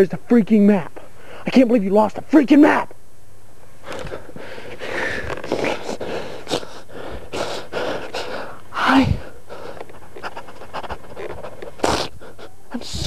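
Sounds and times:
man breathing hard and sniffling: 0:03.8 - 0:13.0.

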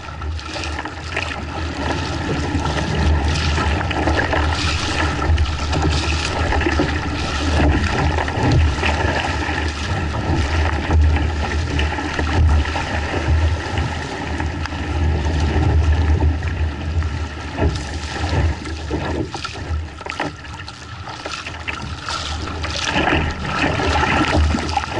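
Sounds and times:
water splashing around kayak: 0:00.0 - 0:24.9.

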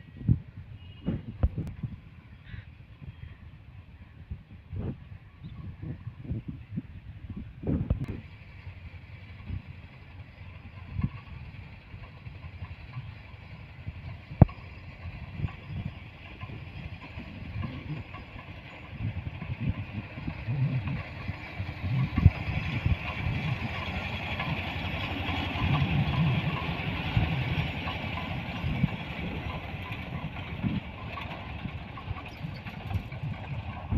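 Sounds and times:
toy train engine rumbling: 0:08.1 - 0:33.9.

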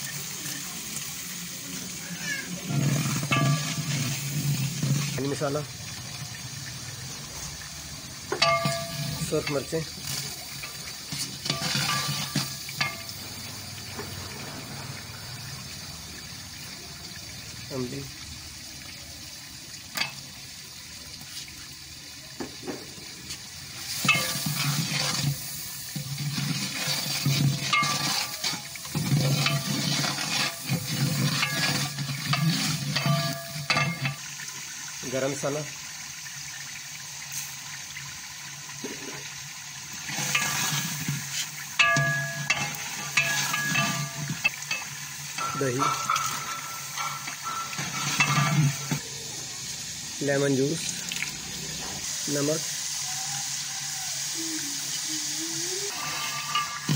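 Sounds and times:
ladle stirring liquid in a pot: 0:02.6 - 0:13.4, 0:23.3 - 0:34.7, 0:39.2 - 0:49.1, 0:55.9 - 0:56.9.

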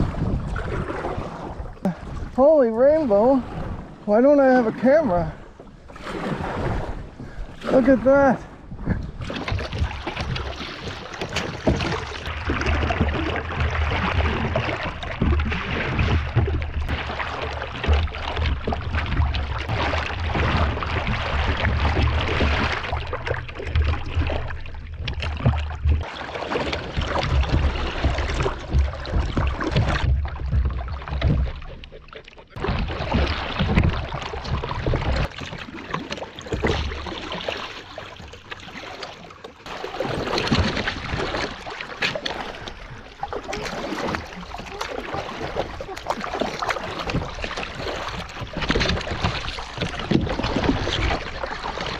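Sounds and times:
wind on microphone: 0:00.0 - 0:02.4
water sloshing against a board: 0:00.0 - 0:51.9.

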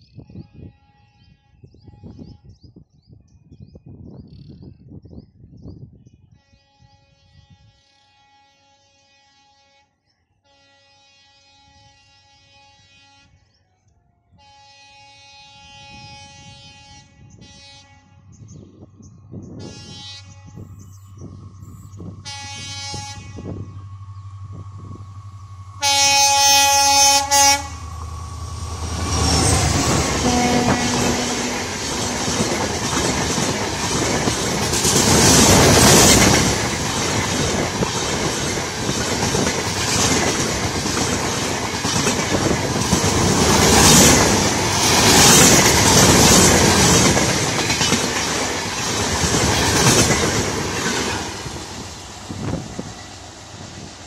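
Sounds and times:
train horn: 0:00.3 - 0:02.5, 0:06.3 - 0:13.6, 0:14.3 - 0:18.5, 0:19.6 - 0:37.8, 0:42.0 - 0:48.5
diesel locomotive engine drone: 0:14.7 - 0:54.0
train wheels clacking on rails: 0:27.8 - 0:54.0.

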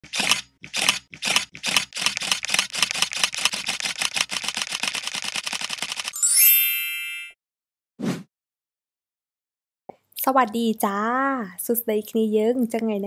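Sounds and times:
camera shutter clicks: 0:00.2 - 0:05.9
bright shimmering chime: 0:06.2 - 0:07.4.

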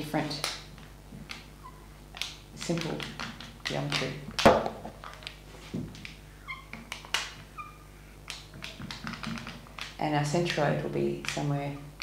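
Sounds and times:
marker squeaking on glass: 0:01.6 - 0:01.9, 0:06.4 - 0:07.9.

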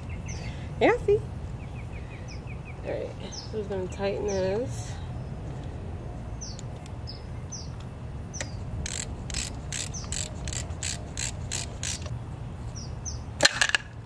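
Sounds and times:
ratchet wrench ratcheting: 0:08.8 - 0:12.1.

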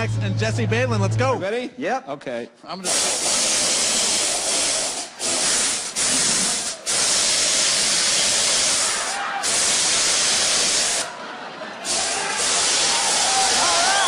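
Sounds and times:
pressurised gas hissing: 0:02.8 - 0:11.1, 0:11.8 - 0:14.0.

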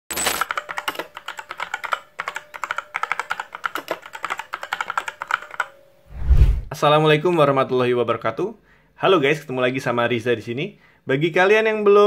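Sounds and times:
keyboard typing: 0:00.2 - 0:05.8.

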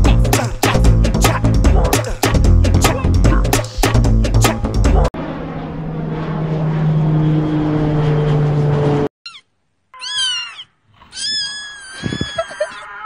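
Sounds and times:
music with drums: 0:00.0 - 0:05.0
jet airliner engine noise: 0:05.2 - 0:09.1
cat meowing: 0:09.3 - 0:13.0.

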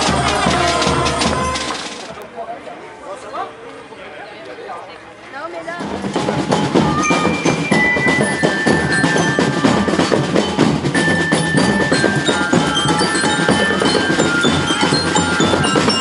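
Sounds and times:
snare drums beating: 0:00.0 - 0:02.1, 0:05.8 - 0:16.0
glockenspiel notes ringing: 0:06.0 - 0:16.0.

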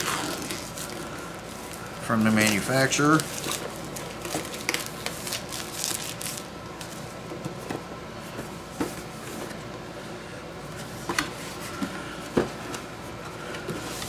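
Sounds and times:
plastic wrap crinkling: 0:00.0 - 0:07.0.

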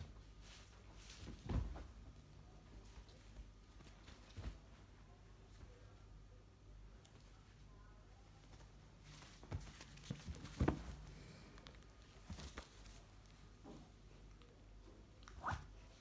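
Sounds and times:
clothing rustling: 0:00.0 - 0:05.0, 0:08.4 - 0:14.0.

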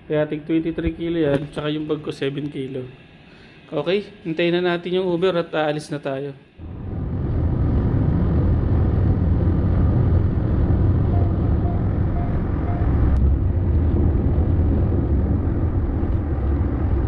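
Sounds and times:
car road noise rumble: 0:06.6 - 0:17.0.

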